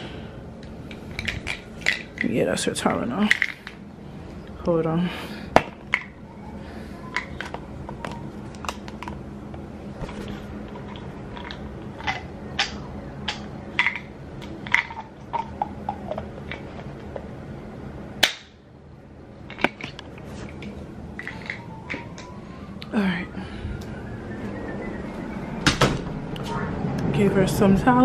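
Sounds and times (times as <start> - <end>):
steady low hum: 0.0 - 28.0
objects clicking and knocking: 0.9 - 2.3, 19.5 - 22.3.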